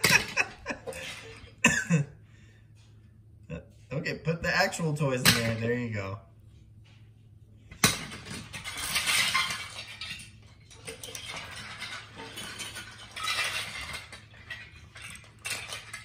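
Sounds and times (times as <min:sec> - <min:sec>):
plastic toys rattling: 0:07.8 - 0:16.0.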